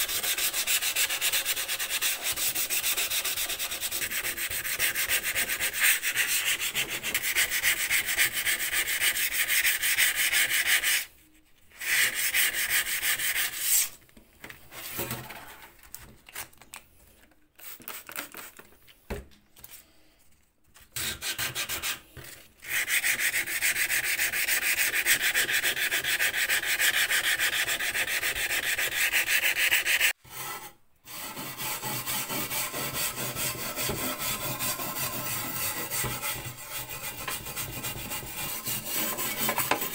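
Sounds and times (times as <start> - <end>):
sandpaper rubbing on painted metal: 0.0 - 11.1, 11.7 - 14.0, 21.0 - 30.2, 31.1 - 39.9.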